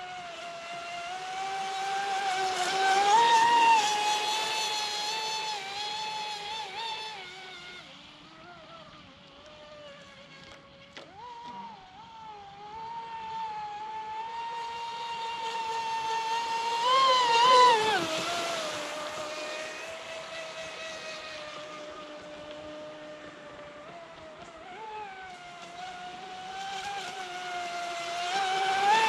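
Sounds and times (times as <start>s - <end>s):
rush of water: 0.0s - 29.0s
electric motor whining: 1.0s - 29.0s.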